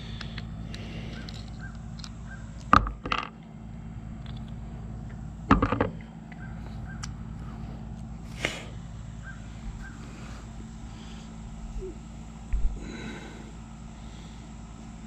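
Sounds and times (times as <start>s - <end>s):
crow cawing: 6.3s - 7.6s, 9.2s - 10.3s.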